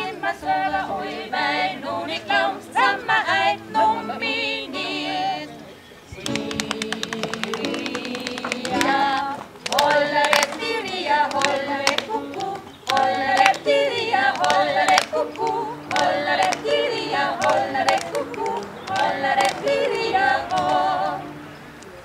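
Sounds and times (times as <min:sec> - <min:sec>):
women singing together: 0:00.0 - 0:21.6
hand claps: 0:06.1 - 0:20.8.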